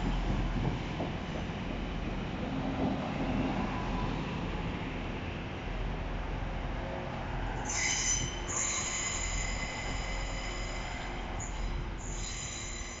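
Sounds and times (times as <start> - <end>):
train rumbling past: 0.0 - 13.0
train wheels squealing on track: 7.6 - 13.0.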